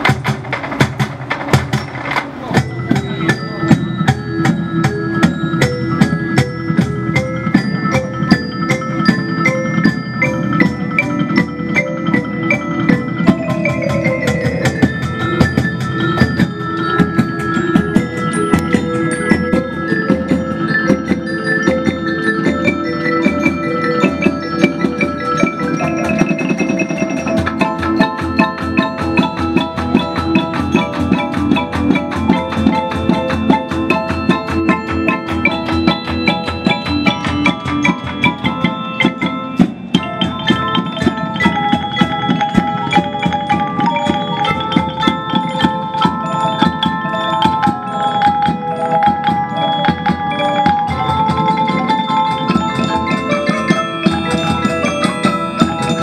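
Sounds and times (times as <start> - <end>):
mallet percussion melody: 0.0 - 56.0
steady drum beat: 0.0 - 56.0.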